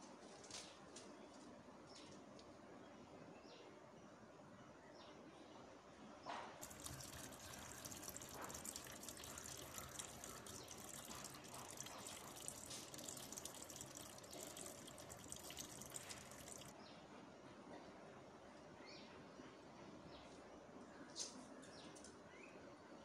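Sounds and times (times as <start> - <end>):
tap water pouring into metal pot: 6.6 - 16.7.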